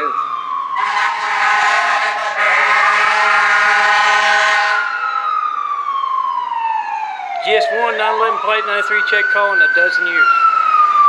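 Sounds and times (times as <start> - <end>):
siren wailing: 0.0 - 11.0
loud steady pitched blast: 0.8 - 5.1.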